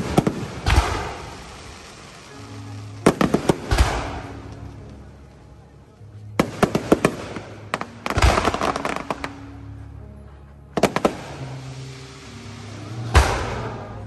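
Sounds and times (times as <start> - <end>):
fireworks sharp bangs: 0.0 - 2.3, 3.0 - 4.4, 6.4 - 9.4, 10.8 - 11.8, 12.6 - 14.0
fireworks crackling: 0.0 - 9.8, 10.8 - 14.0
deep fireworks boom: 12.8 - 14.0.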